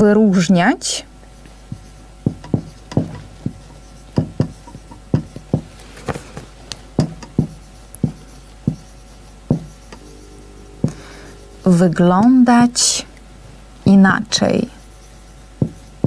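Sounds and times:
marker writing on whiteboard: 1.3 - 10.3, 14.5 - 16.0.

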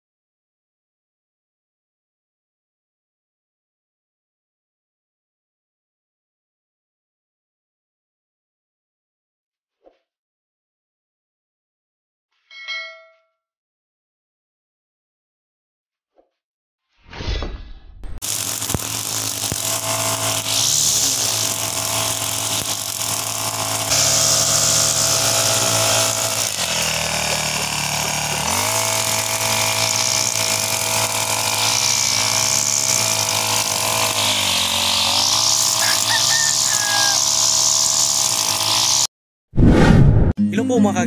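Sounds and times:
blade cutting grass: 18.2 - 39.1
brush cutter engine running: 18.2 - 39.1.

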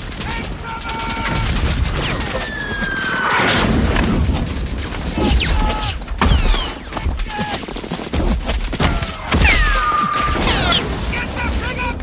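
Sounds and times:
explosion: 0.0 - 6.7.

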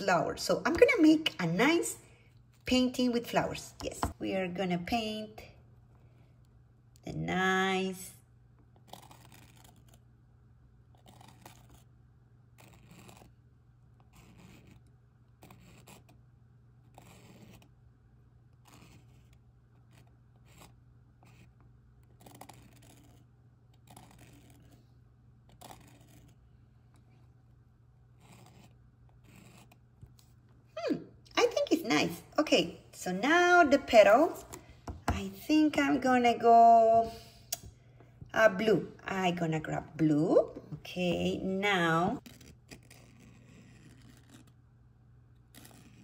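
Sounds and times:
low steady hum: 0.0 - 46.0
marker scratching on canvas: 8.8 - 10.1, 10.9 - 17.8, 18.5 - 27.3, 28.1 - 30.4, 41.7 - 44.6, 45.5 - 46.0.

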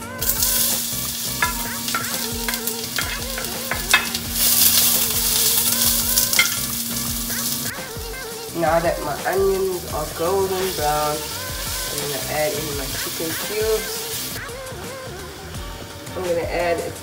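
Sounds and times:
onions sizzling in hot oil: 0.0 - 17.0
wooden spoon scraping a pan: 0.2 - 7.7.

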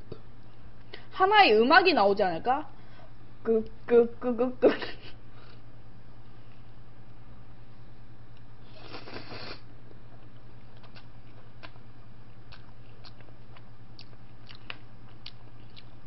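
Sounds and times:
person slurping spaghetti: 8.7 - 9.6
person chewing: 8.7 - 16.0.

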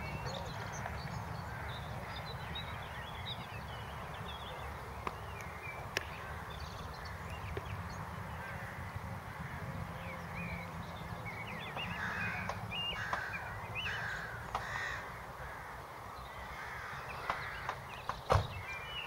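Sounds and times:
crows cawing: 0.3 - 2.8, 8.2 - 10.2, 11.8 - 18.0.

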